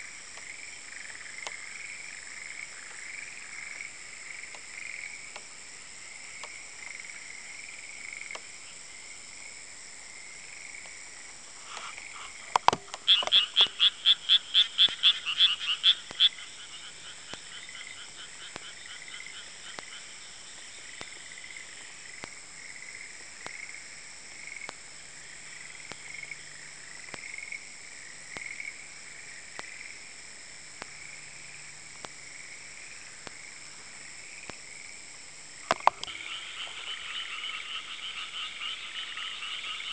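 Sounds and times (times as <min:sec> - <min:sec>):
frog chorus trilling: 0:11.6 - 0:23.8, 0:35.6 - 0:39.9
frog croaking close by: 0:11.6 - 0:23.8, 0:35.6 - 0:39.9.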